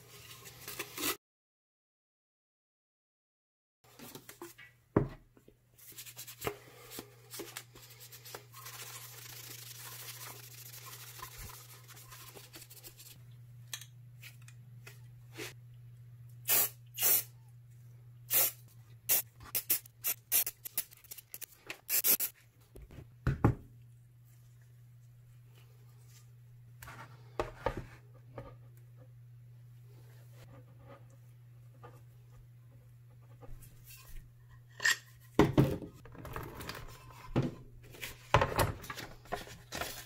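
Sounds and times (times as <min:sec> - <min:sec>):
low steady hum: 0:05.7 - 0:21.3, 0:22.4 - 0:39.8
aerosol spray hissing: 0:21.9 - 0:22.3.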